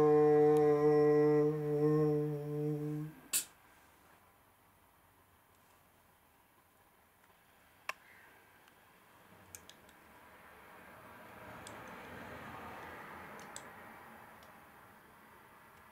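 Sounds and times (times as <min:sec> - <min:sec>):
soft rustling hiss: 0:03.0 - 0:10.2.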